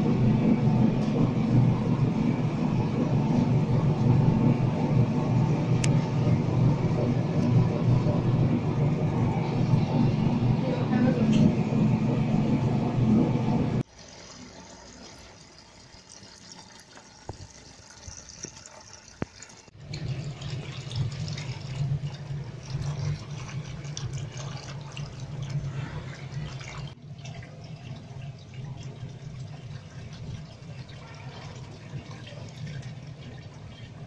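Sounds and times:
low steady hum: 0.0s - 13.9s
oil pouring into metal bucket: 14.0s - 33.7s.

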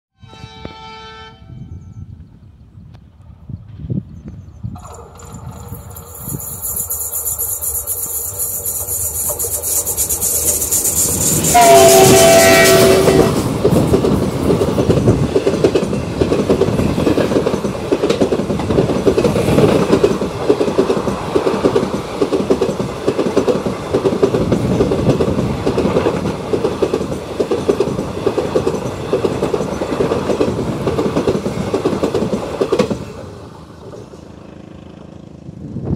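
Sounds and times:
locomotive horn: 0.2s - 1.8s, 11.5s - 13.5s
train wheels clickety-clack: 4.8s - 34.5s.

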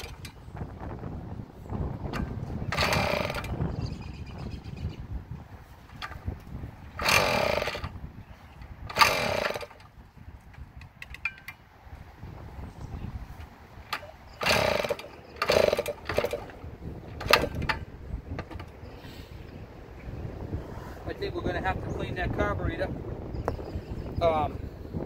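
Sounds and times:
two-stroke engine revving: 0.0s - 0.3s, 2.2s - 3.7s, 6.9s - 8.0s, 8.9s - 9.8s, 13.9s - 16.6s, 17.2s - 17.6s.

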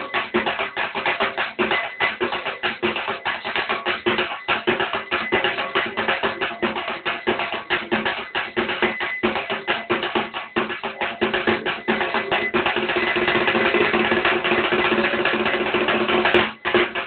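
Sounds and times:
held musical tones: 0.0s - 15.1s
fast rhythmic drumming: 0.0s - 17.0s.

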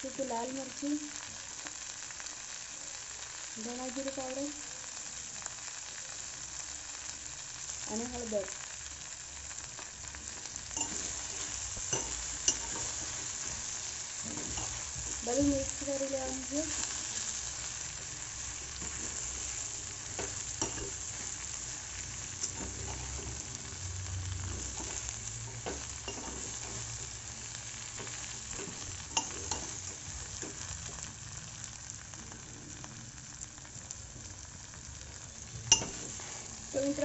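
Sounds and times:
okra sizzling in oil: 0.0s - 37.0s
metal spoon scraping a pan: 10.7s - 17.3s, 18.5s - 23.6s, 24.4s - 27.2s, 28.0s - 30.6s, 35.7s - 36.6s.

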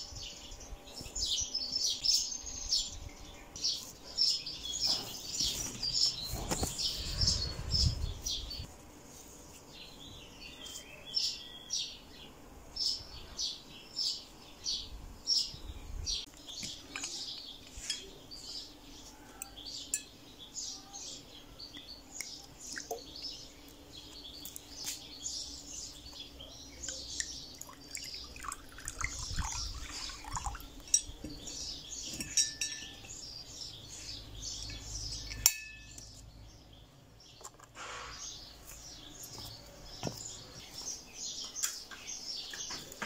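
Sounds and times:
birds chirping: 0.0s - 8.7s, 9.4s - 43.0s
glass clinking: 19.9s - 20.2s, 30.4s - 31.3s, 32.1s - 33.2s, 35.2s - 36.0s
water pouring into glass bowl: 27.6s - 31.0s.

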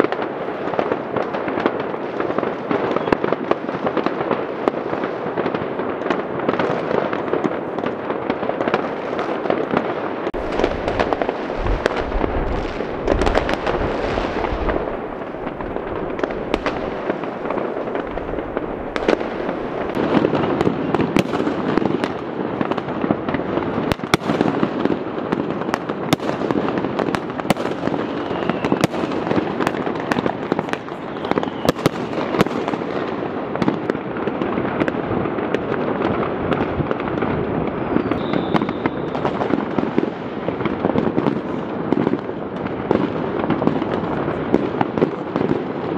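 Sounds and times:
firecracker bangs: 0.0s - 45.8s
fireworks crackling and booming: 0.0s - 45.9s.

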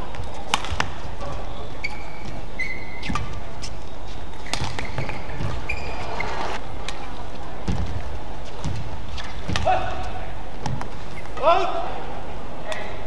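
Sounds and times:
sports hall noise: 0.0s - 13.0s
racket striking shuttlecock: 0.2s - 2.0s, 4.4s - 5.8s
shoes squeaking on court: 1.2s - 6.6s.

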